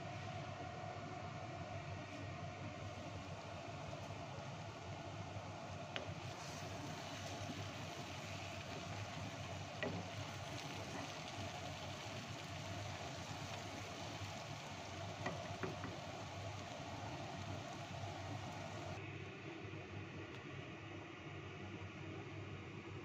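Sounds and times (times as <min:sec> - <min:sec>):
steady hiss: 0:02.9 - 0:19.0
wooden spoon stirring stew: 0:03.0 - 0:19.0.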